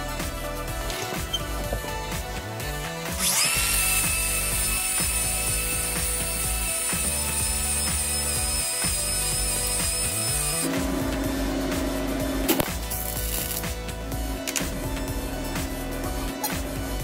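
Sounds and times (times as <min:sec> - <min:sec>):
background music: 0:00.0 - 0:17.0
angle grinder whining on steel: 0:02.8 - 0:13.7.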